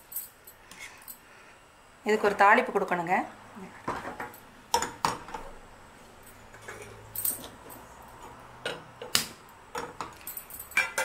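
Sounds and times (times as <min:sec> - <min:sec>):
metal cookware clanking on grate: 0:10.7 - 0:11.0.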